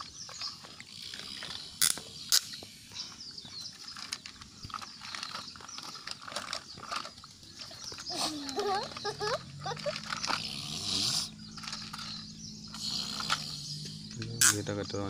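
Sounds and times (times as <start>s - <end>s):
plastic toy parts clicking and rattling: 3.6s - 14.6s.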